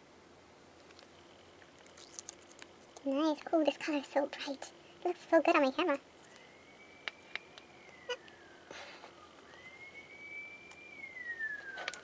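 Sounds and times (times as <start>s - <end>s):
distant siren wailing: 4.9s - 12.0s.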